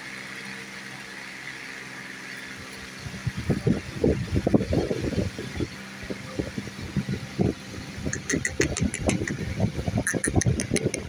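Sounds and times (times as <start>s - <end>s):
parakeet chirping: 8.0s - 11.0s.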